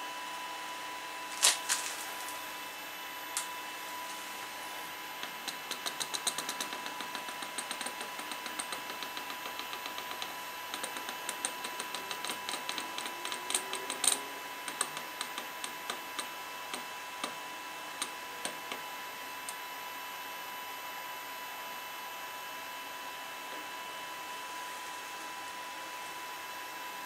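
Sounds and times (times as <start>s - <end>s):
light mechanical clicks: 5.4s - 17.4s.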